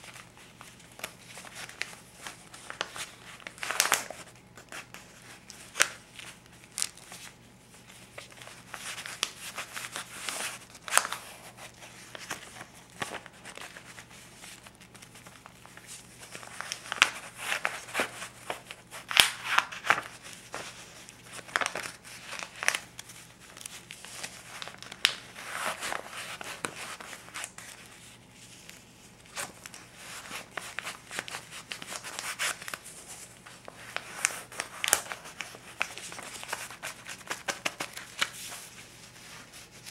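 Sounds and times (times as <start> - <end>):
paper bills crinkling and flipping: 0.0 - 39.9
crisp paper snaps: 1.0 - 4.7, 16.5 - 27.6.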